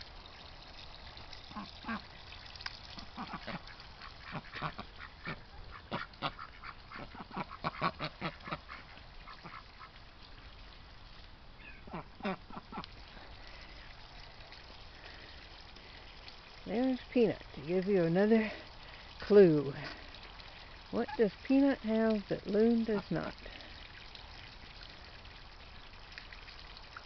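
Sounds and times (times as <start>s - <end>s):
ducks quacking: 3.0s - 10.0s, 11.6s - 12.9s.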